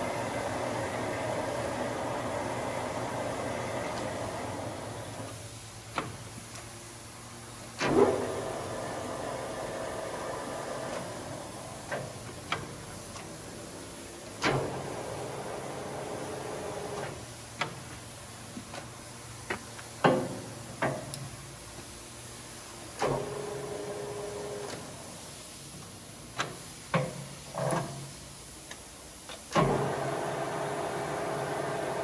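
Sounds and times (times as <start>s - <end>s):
lathe spindle running: 0.0s - 5.2s, 7.9s - 11.9s, 29.7s - 32.0s
steady machine hum: 0.0s - 19.5s, 20.4s - 26.3s, 29.6s - 32.0s
lathe controls clunking and clicking: 2.2s - 6.7s, 7.8s - 13.5s, 14.2s - 17.9s, 22.9s - 24.9s, 28.7s - 32.0s.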